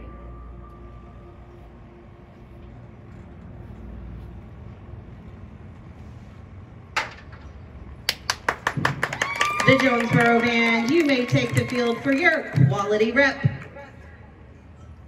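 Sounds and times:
low stadium rumble: 0:00.0 - 0:15.0
crowd hand claps: 0:08.0 - 0:12.8.

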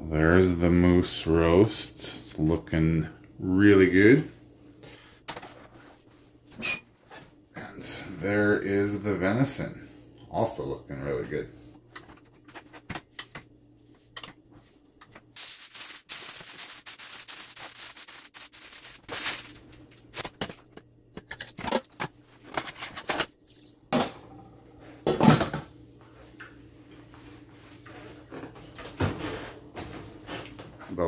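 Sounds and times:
aluminium foil crinkling: 0:15.4 - 0:20.7.

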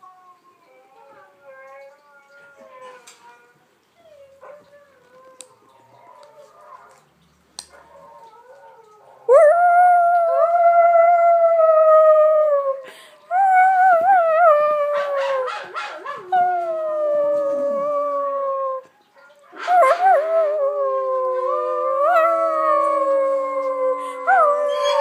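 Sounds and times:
dog howling: 0:00.0 - 0:07.0, 0:13.4 - 0:25.0
lower dog howl: 0:00.0 - 0:07.0, 0:19.5 - 0:25.0.

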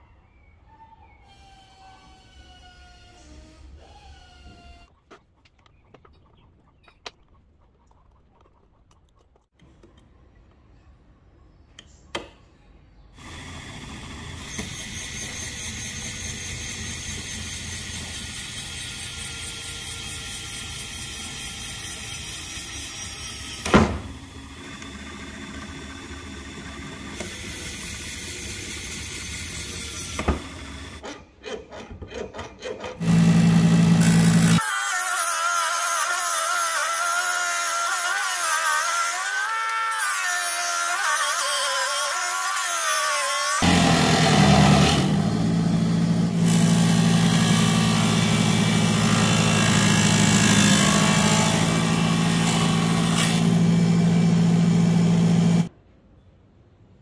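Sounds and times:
electric motor running: 0:33.0 - 0:34.6, 0:43.5 - 0:55.7.

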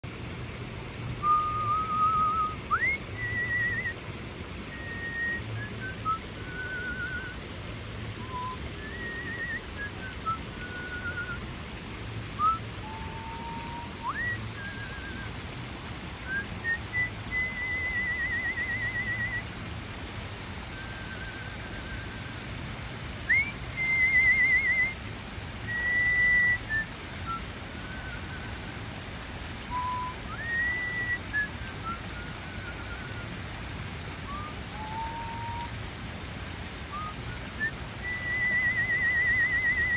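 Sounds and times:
waterfalls splashing into pond: 0:00.0 - 0:39.9
person whistling a tune: 0:01.2 - 0:07.4, 0:08.2 - 0:11.5, 0:12.4 - 0:15.4, 0:16.2 - 0:19.6, 0:20.6 - 0:22.5, 0:23.2 - 0:25.0, 0:25.6 - 0:28.6, 0:29.6 - 0:33.4, 0:34.2 - 0:35.8, 0:36.8 - 0:39.9.

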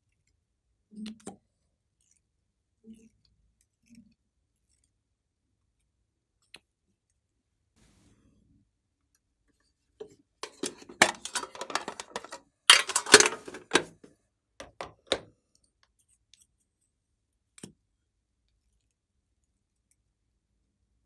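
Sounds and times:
plastic tube clicks and rustling: 0:10.0 - 0:15.3.

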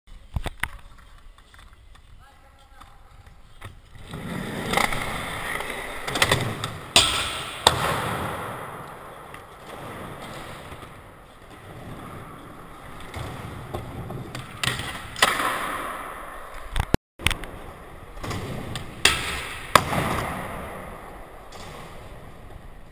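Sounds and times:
skateboard wheels rumbling: 0:00.1 - 0:06.9, 0:08.2 - 0:14.6.

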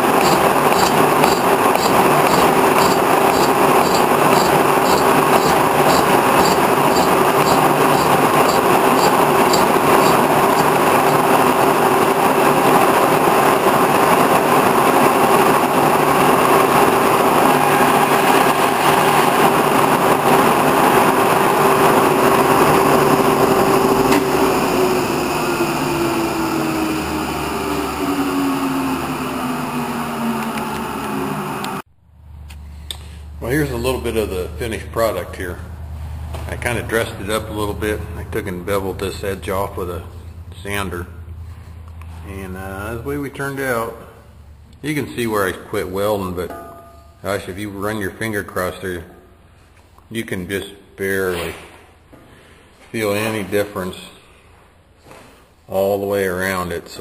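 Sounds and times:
machine winding down: 0:00.0 - 0:31.8
boring mill machine whine: 0:00.0 - 0:31.9.

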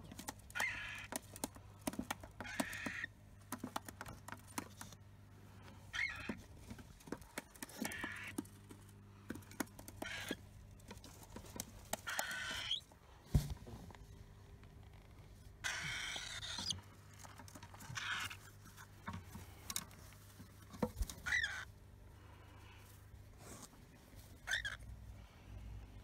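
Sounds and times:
bird chick raspy calls: 0:00.5 - 0:01.2, 0:02.4 - 0:03.1, 0:05.9 - 0:06.4, 0:07.6 - 0:08.4, 0:10.0 - 0:10.4, 0:12.0 - 0:12.8, 0:15.6 - 0:16.8, 0:21.2 - 0:21.7.

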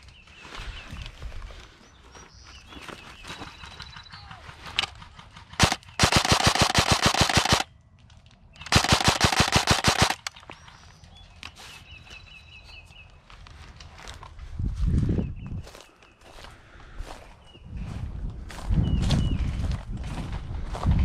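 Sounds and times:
airsoft gun automatic bursts: 0:04.6 - 0:07.7, 0:08.6 - 0:10.5.

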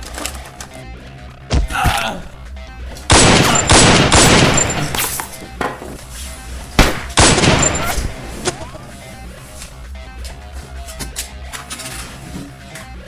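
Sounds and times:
background music: 0:00.0 - 0:13.0
gunshots: 0:03.1 - 0:05.3, 0:06.8 - 0:08.6.

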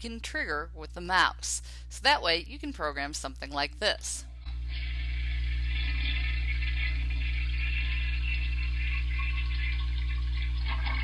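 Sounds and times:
toilet flushing: 0:04.6 - 0:11.0.

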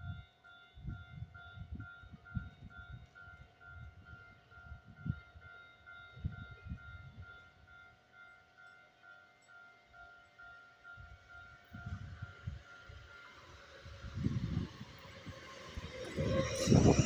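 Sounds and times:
wind buffeting microphone: 0:00.8 - 0:07.4, 0:11.0 - 0:17.0.

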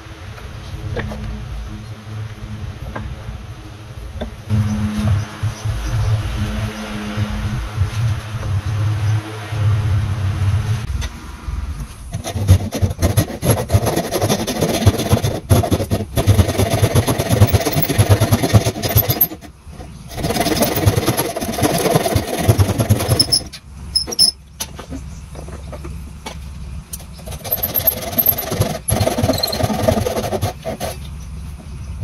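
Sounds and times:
low steady hum: 0:00.0 - 0:16.3
hand saw rasping through wood: 0:12.1 - 0:24.4, 0:27.1 - 0:31.1.

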